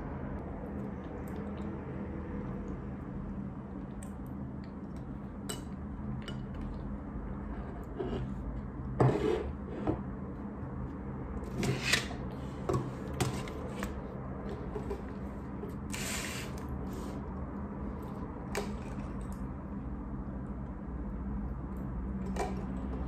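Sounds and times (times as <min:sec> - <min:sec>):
long scrape on desk: 0:07.5 - 0:08.4, 0:09.0 - 0:10.0, 0:15.9 - 0:17.2.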